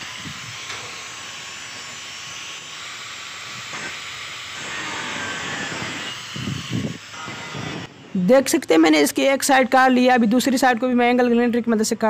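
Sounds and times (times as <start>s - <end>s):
angle grinder cutting sheet metal: 0.0s - 8.1s.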